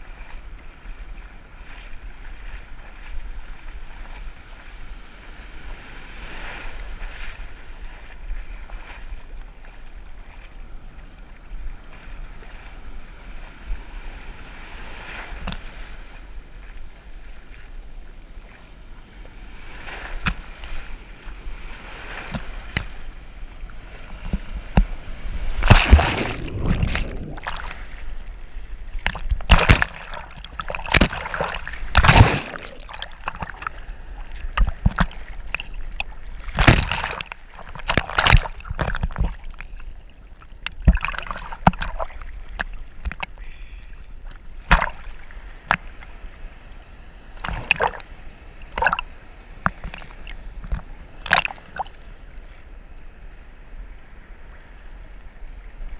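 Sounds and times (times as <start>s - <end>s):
rush of water: 0.0s - 52.6s
waves splashing loudly: 23.8s - 39.4s
water sloshing and splashing: 23.8s - 43.4s, 44.2s - 46.4s, 47.4s - 52.0s.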